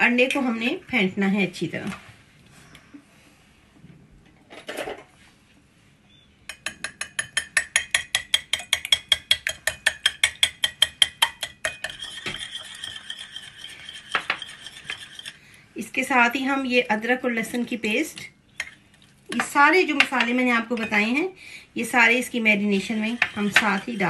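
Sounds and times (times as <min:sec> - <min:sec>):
utensil beating egg on plate: 0:06.6 - 0:15.4, 0:22.1 - 0:24.0.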